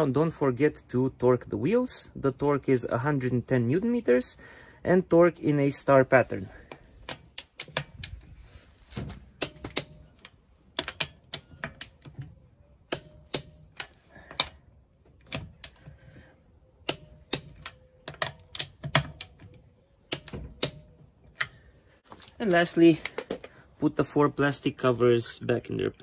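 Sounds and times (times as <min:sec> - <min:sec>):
metallic clicks of hand tools: 0:07.1 - 0:08.2, 0:09.4 - 0:12.2, 0:12.9 - 0:15.9, 0:16.8 - 0:19.5, 0:20.1 - 0:21.6.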